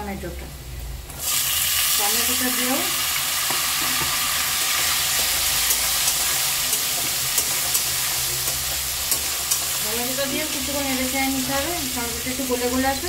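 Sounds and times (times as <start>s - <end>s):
vegetables sizzling in hot oil: 1.0s - 13.0s
metal spatula clicking on pan: 3.5s - 9.7s.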